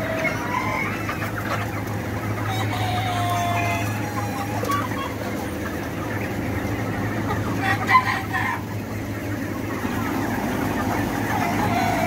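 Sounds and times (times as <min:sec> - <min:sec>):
chickens clucking: 0:00.0 - 0:12.0
loud chicken call: 0:00.0 - 0:12.0.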